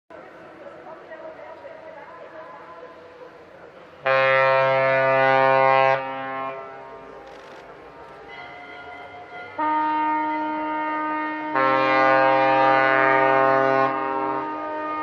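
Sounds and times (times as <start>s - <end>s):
deeper ship horn: 4.0s - 7.0s, 8.3s - 15.0s
ship horn blast: 4.0s - 7.0s, 8.3s - 15.0s.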